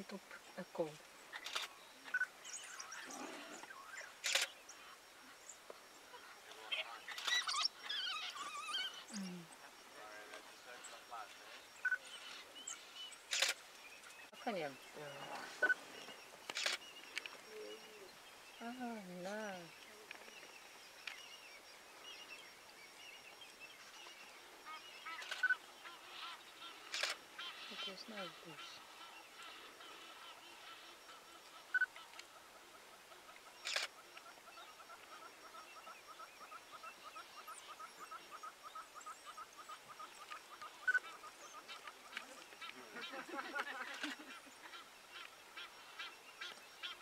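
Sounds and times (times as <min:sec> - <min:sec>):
wild dogs twittering: 0:01.3 - 0:04.5, 0:06.1 - 0:10.0.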